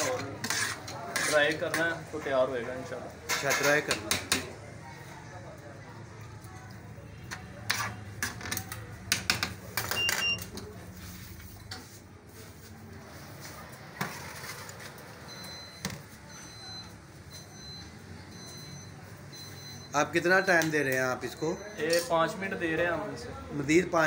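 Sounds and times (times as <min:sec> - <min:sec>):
spatula scraping a pan: 0:00.0 - 0:01.8, 0:07.6 - 0:08.3.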